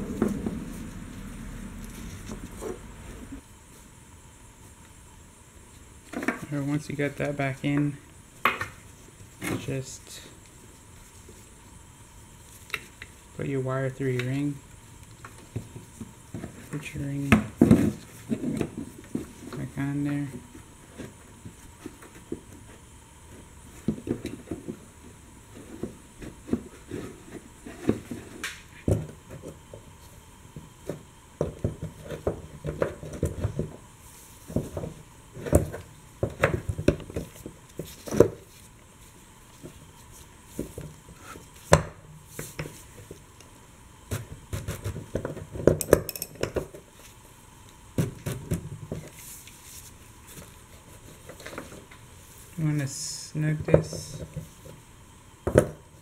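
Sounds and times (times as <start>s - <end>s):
metal clinks and taps: 45.8s - 46.5s.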